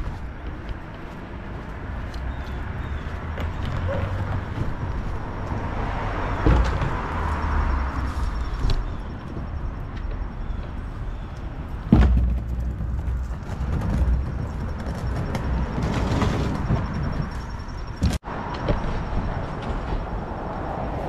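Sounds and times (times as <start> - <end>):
city traffic noise: 0.0 - 21.0.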